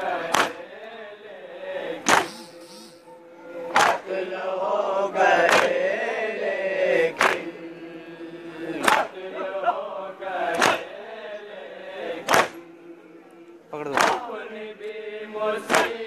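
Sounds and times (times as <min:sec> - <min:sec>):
men chanting together: 0:00.0 - 0:02.6, 0:03.7 - 0:16.0
hands slapping chests: 0:00.3 - 0:00.6, 0:02.0 - 0:02.3, 0:03.8 - 0:04.0, 0:07.2 - 0:07.4, 0:08.8 - 0:09.1, 0:10.5 - 0:10.8, 0:12.2 - 0:12.6, 0:13.9 - 0:14.2, 0:15.7 - 0:15.9.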